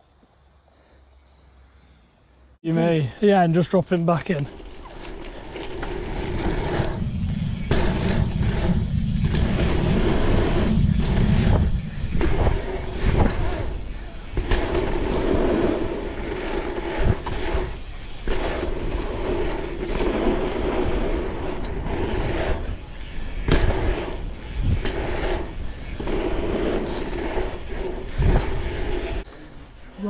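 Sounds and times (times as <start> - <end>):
bike tyres rolling on asphalt: 4.1 - 30.0
bike knocking on bumps: 4.5 - 28.8.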